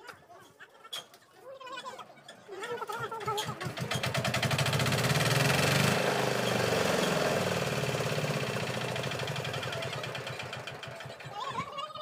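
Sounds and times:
concrete mixer diesel engine: 0:03.0 - 0:12.0.

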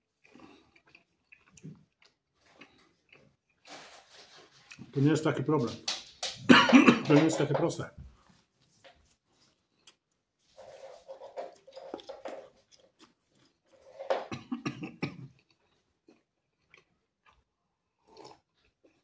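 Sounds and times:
person chewing pizza: 0:00.0 - 0:05.0, 0:09.1 - 0:19.0.

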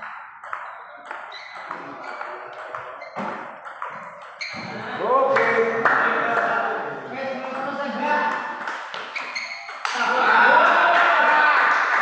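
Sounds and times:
ping pong ball bouncing on table: 0:00.0 - 0:04.7, 0:07.4 - 0:10.7
ping pong ball hitting paddles: 0:00.0 - 0:06.7, 0:07.4 - 0:11.2.

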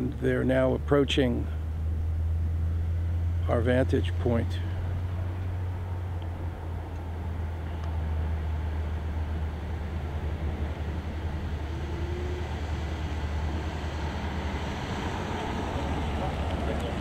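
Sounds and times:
truck engines rumbling: 0:00.0 - 0:17.0.

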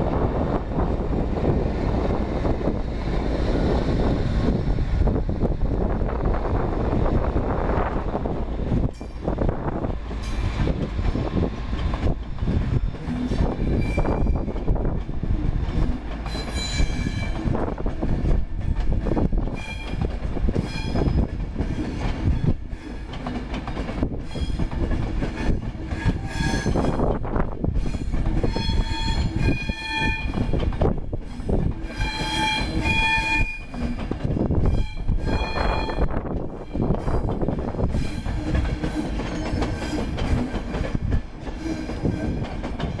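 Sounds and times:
train wheels rumbling on rail: 0:00.0 - 0:43.0
high wheel squeals: 0:27.8 - 0:30.4, 0:31.9 - 0:33.9, 0:34.6 - 0:36.1.

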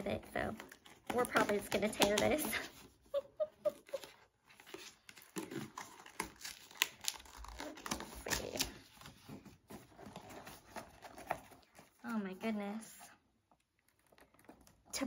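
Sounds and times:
cardboard box tearing: 0:04.5 - 0:11.7.

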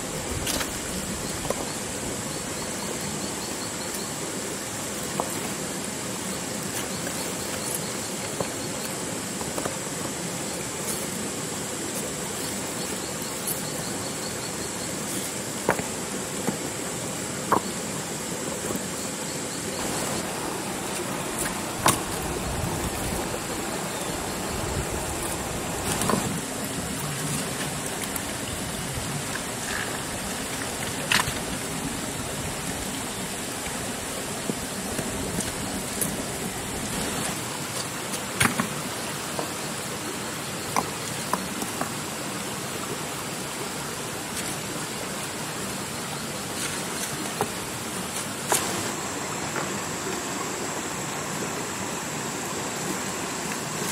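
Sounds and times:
steady rushing noise: 0:09.1 - 0:38.1.

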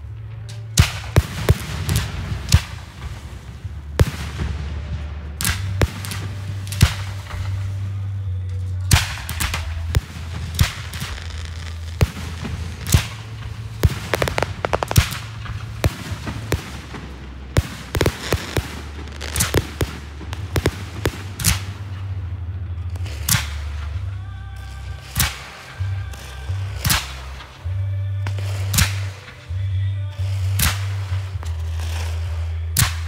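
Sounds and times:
fireworks bangs and crackles: 0:00.1 - 0:08.2, 0:08.8 - 0:27.6
steady low hum: 0:09.6 - 0:25.0.

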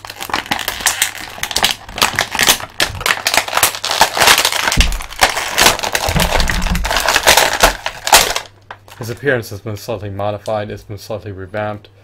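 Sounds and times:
plastic bag crinkling: 0:00.0 - 0:09.3.

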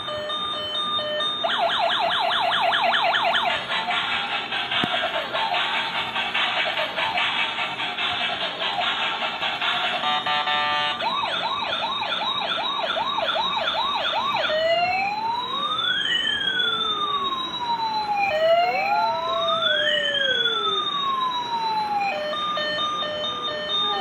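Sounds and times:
toy electronic siren: 0:00.0 - 0:24.0.

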